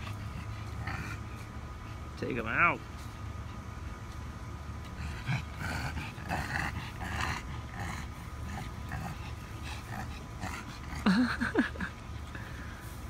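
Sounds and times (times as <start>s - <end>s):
dog growling: 0.0s - 1.4s, 4.9s - 11.6s.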